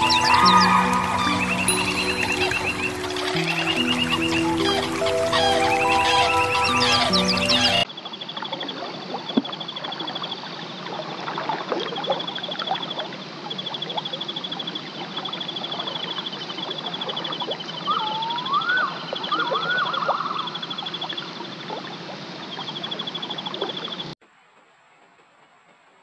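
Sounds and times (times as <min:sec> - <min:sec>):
swooping whistled calls: 0:00.0 - 0:07.9, 0:17.0 - 0:21.3
light water splashes: 0:00.0 - 0:17.9.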